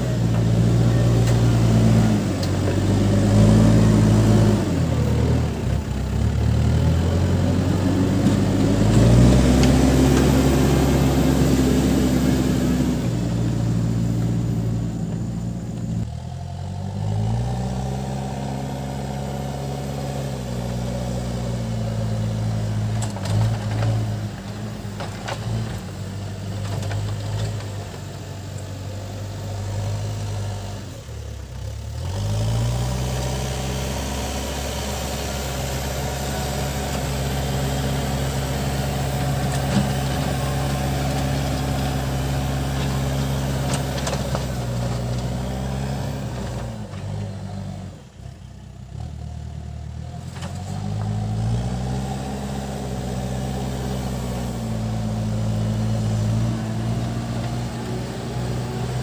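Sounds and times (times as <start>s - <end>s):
diesel engine revving: 0.0s - 59.0s.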